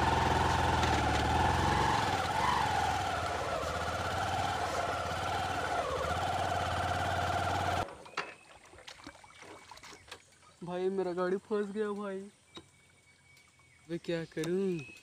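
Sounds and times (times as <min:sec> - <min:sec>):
water washing around vehicle: 0:00.0 - 0:07.8
vehicle engine under load: 0:00.0 - 0:08.1.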